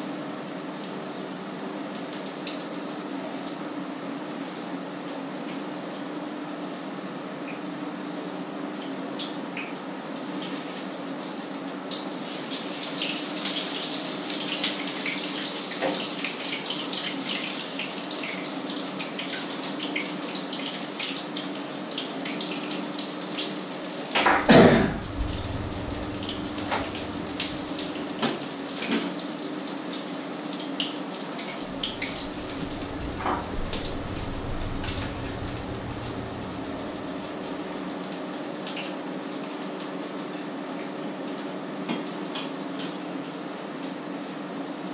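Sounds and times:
steady low hum: 0:24.3 - 0:28.6, 0:31.6 - 0:38.4.

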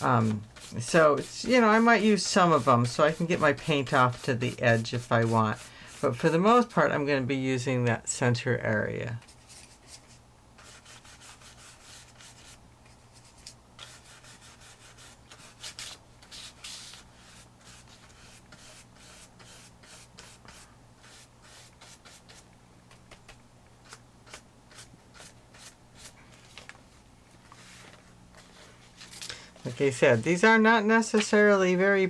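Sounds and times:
paintbrush scrubbing on paper: 0:00.0 - 0:06.4, 0:09.3 - 0:22.4
low steady hum: 0:00.0 - 0:32.0.

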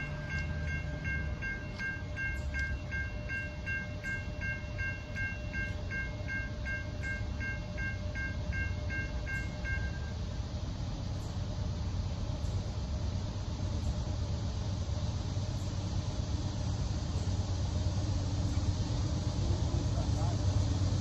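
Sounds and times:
crossing warning bell dinging: 0:00.0 - 0:10.3
low train rumble: 0:00.0 - 0:21.0.

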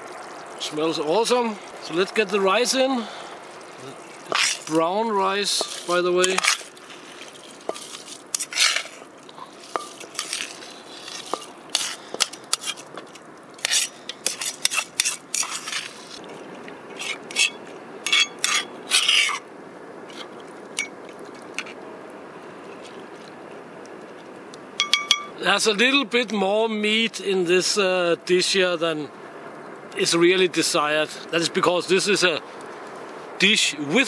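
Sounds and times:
bowl and utensil clinking on metal: 0:24.8 - 0:25.4.

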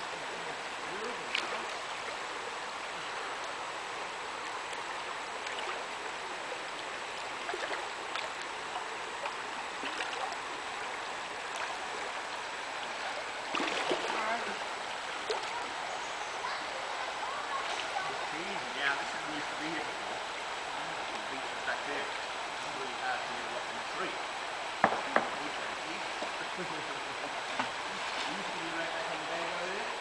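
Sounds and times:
river running over rocks: 0:00.0 - 0:30.0
light splashes of swimmer: 0:01.3 - 0:02.1, 0:09.2 - 0:10.4, 0:13.0 - 0:14.4.

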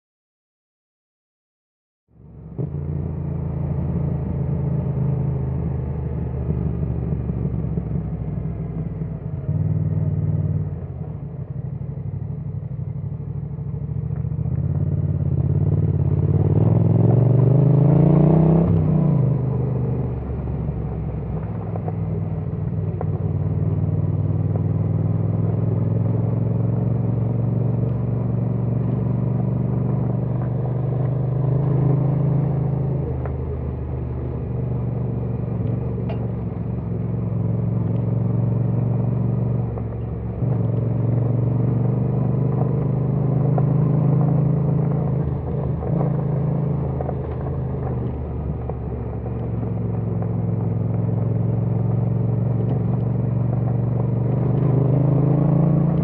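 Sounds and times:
motorcycle engine revving: 0:14.3 - 0:56.0.

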